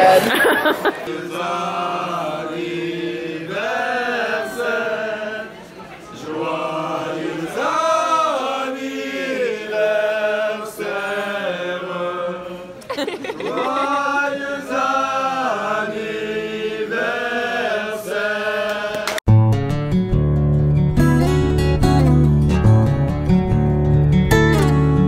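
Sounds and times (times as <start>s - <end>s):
men singing together: 0.6s - 5.6s, 6.2s - 12.8s, 13.4s - 19.2s
strummed acoustic guitar music: 19.3s - 25.0s.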